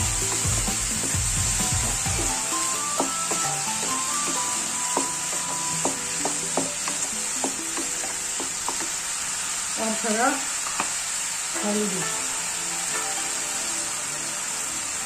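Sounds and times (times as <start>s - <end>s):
vegetables sizzling in oil: 0.0s - 15.0s
wooden spatula tapping a pan: 2.9s - 9.0s.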